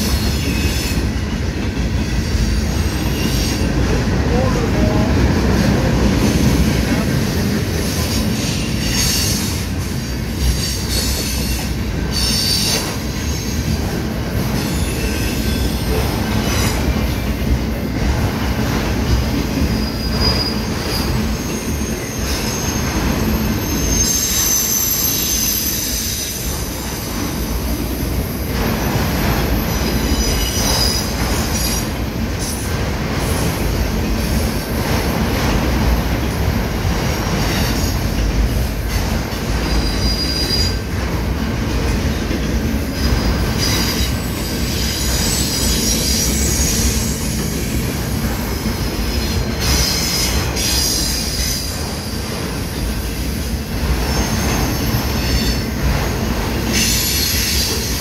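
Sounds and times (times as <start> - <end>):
train wheels rumbling on rail: 0.0 - 58.0
wheel squeals: 19.7 - 26.5.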